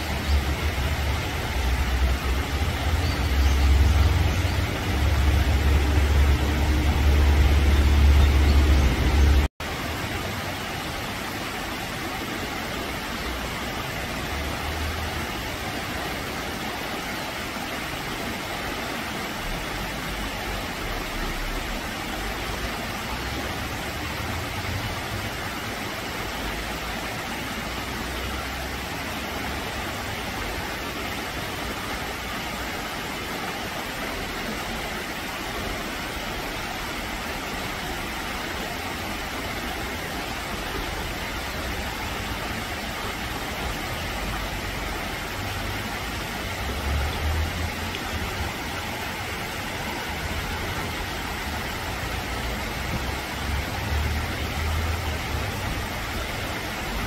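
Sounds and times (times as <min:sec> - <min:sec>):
stream rushing over rocks: 0:00.0 - 0:57.0.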